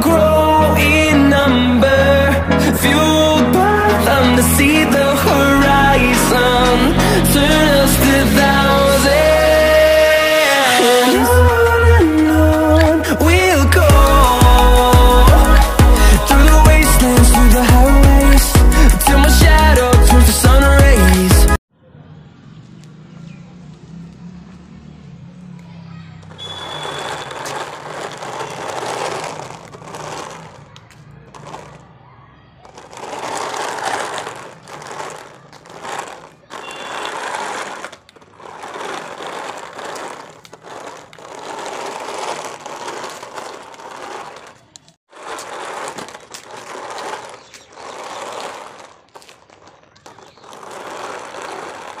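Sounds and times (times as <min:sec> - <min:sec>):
small wheels rolling on concrete: 0:00.0 - 0:21.6, 0:22.5 - 0:52.0
small electric motors whirring: 0:32.6 - 0:52.0.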